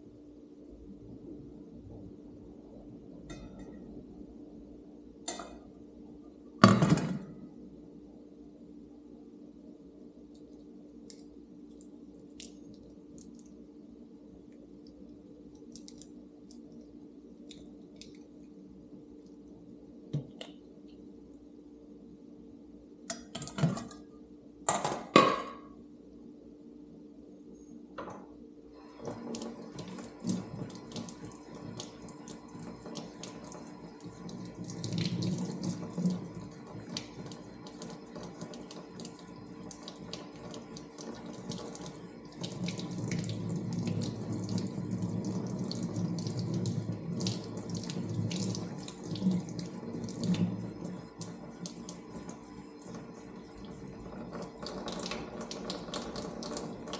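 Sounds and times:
tap water running and splashing: 28.9 - 56.9.

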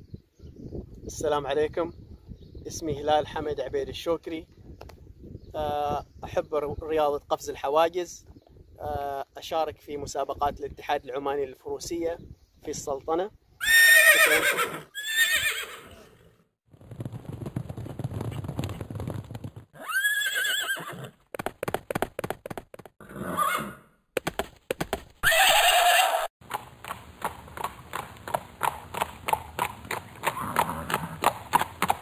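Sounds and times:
horse neighing: 13.6 - 16.3, 19.8 - 21.2, 23.0 - 23.9, 25.2 - 26.3, 30.2 - 31.2
hoofbeats clip-clopping: 16.8 - 19.7, 21.1 - 22.9, 24.2 - 25.4, 26.4 - 32.0.

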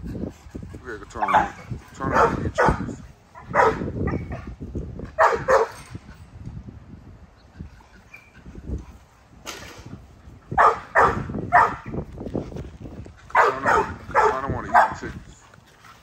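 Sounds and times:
dogs barking: 1.1 - 5.8, 10.5 - 12.0, 13.3 - 15.2.

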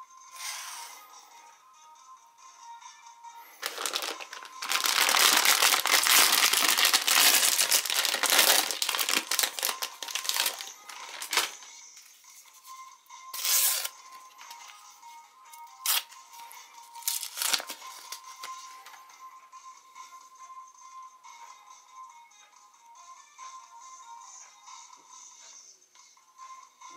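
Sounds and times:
paper backing peeled off: 3.6 - 11.6, 13.4 - 13.9, 17.0 - 18.2
plastic wrapper crinkling and tearing: 3.6 - 11.7, 13.4 - 14.5, 15.8 - 16.2, 16.9 - 18.6.

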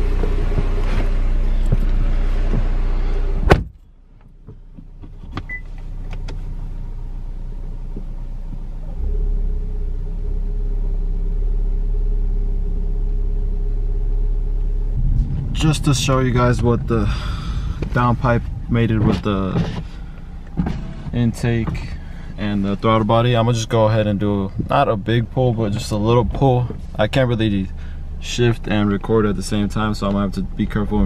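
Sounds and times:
car door shutting: 0.0 - 6.5, 14.6 - 22.4
car engine idling: 0.0 - 31.0.

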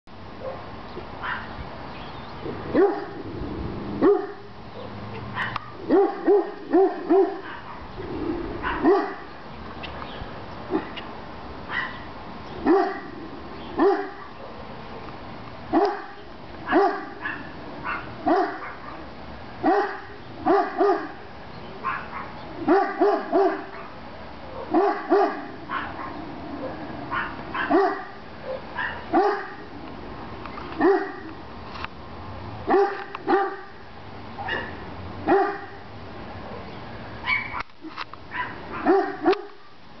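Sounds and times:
large dog barking: 2.7 - 3.3, 4.0 - 7.9, 8.6 - 9.3, 10.7 - 11.0, 11.7 - 14.7, 15.7 - 21.2, 21.8 - 29.7, 30.8 - 31.4, 32.7 - 33.8, 34.4 - 35.9, 38.3 - 39.7.

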